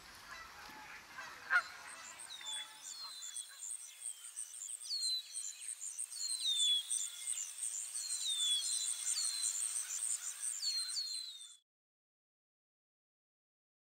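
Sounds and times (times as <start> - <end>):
insects chirping: 1.5 - 11.5
bird whistling downward call: 8.0 - 11.6.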